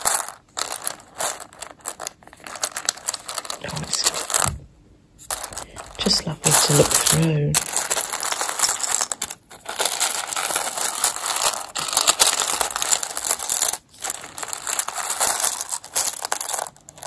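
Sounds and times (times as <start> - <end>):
buttons clattering in a metal tin: 5.3 - 17.0.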